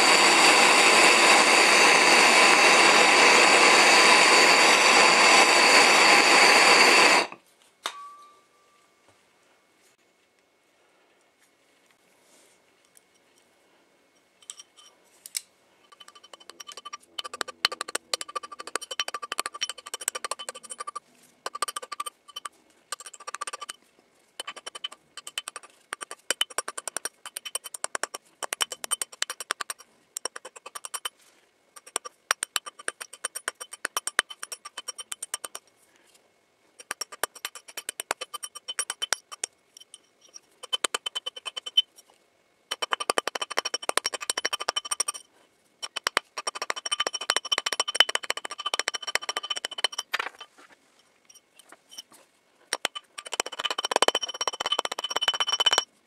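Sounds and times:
hammer tapping metal: 15.9 - 23.8, 24.4 - 31.1, 31.8 - 35.6, 36.8 - 41.9, 42.7 - 45.2, 45.8 - 50.4, 52.7 - 55.9.

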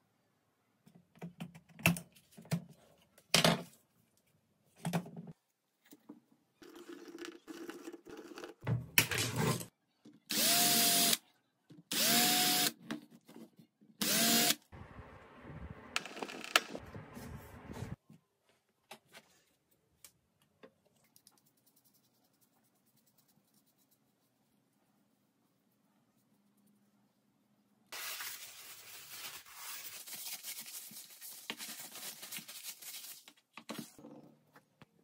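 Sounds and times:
power drill whining: 10.3 - 11.2, 11.9 - 12.7, 14.0 - 14.6.

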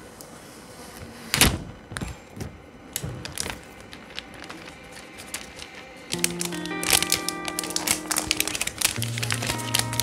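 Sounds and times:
plastic film crinkling: 3.0 - 10.0.

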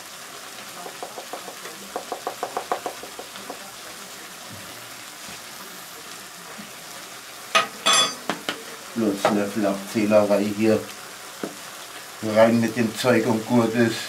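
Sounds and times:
spice shaker knocking over bowl: 0.8 - 3.6.

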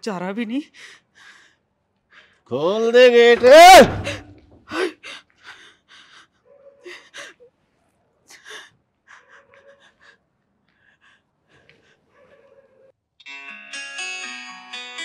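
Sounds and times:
woman breathing quickly with gasps: 0.7 - 2.5, 4.7 - 7.4, 8.3 - 12.2.

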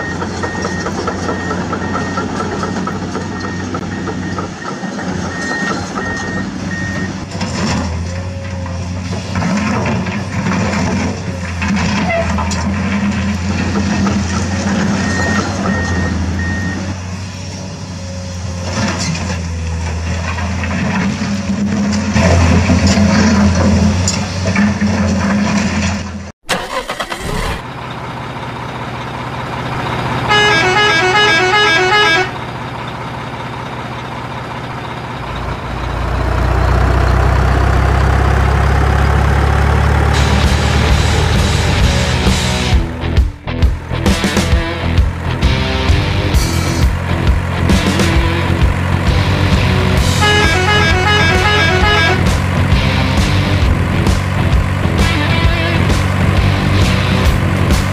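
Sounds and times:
truck engine running: 0.0 - 57.9
horn playing alternating notes: 30.3 - 32.4, 50.0 - 52.4.

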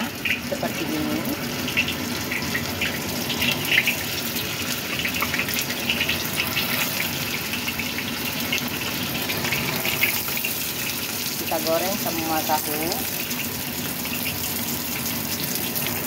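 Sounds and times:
frying crackles and pops: 0.0 - 16.0
oil sizzling in a wok: 0.0 - 16.0.

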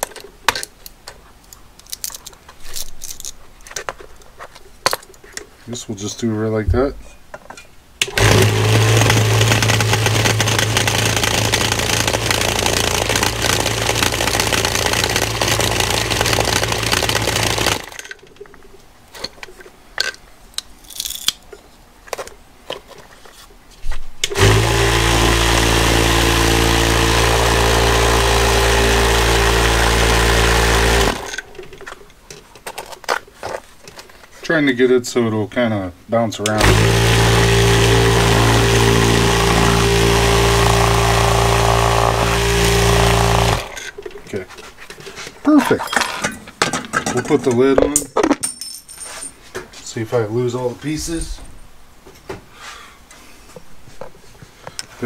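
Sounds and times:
vibratory tumbler motor hum: 8.2 - 18.0, 24.4 - 31.4, 36.6 - 44.0.

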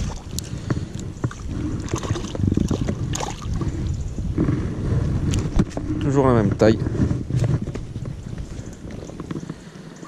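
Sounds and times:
water splashing and trickling: 0.0 - 4.0
low wind rumble: 0.0 - 10.0.

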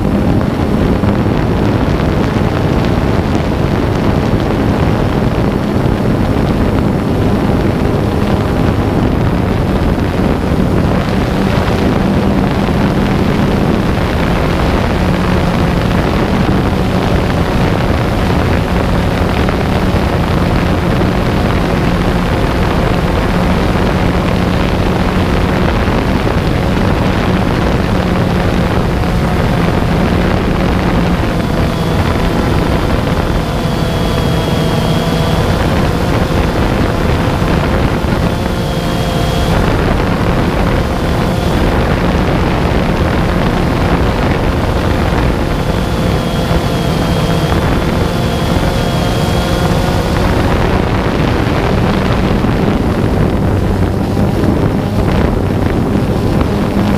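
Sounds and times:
drone propellers whining: 0.0 - 56.9
wind noise: 0.0 - 56.9
high steady tones: 27.8 - 50.7.

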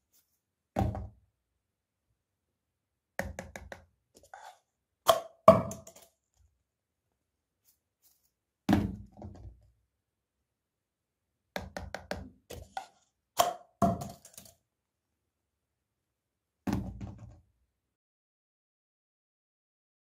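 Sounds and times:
ball bouncing in toilet bowl: 0.8 - 1.2, 3.2 - 3.9, 5.1 - 6.0, 8.7 - 9.7, 11.6 - 14.5, 16.7 - 17.5.

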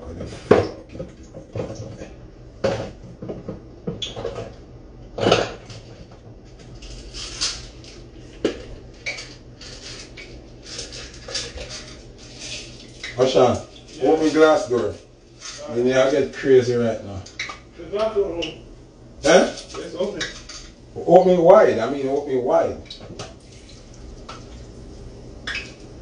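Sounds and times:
dishes and utensils clattering: 5.2 - 6.2.

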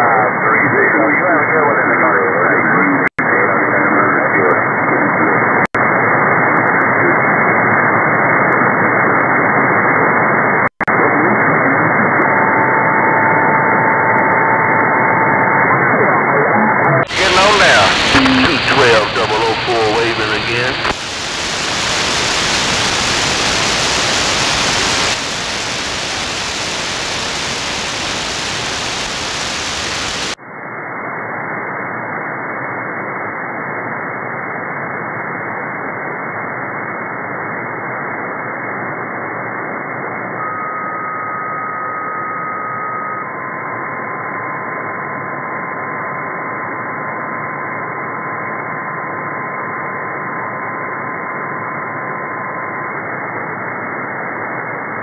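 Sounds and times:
radio static hiss: 0.0 - 41.8
carrier whistle: 40.4 - 43.4.

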